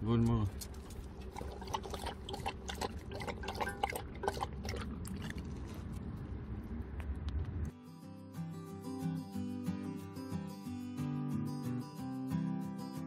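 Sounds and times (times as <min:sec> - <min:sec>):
dog lapping water from bowl: 0:00.6 - 0:05.8.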